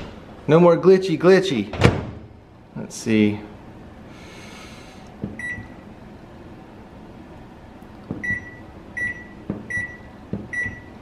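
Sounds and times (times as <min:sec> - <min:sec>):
microwave control panel beeping: 0:05.3 - 0:05.8, 0:08.1 - 0:11.0.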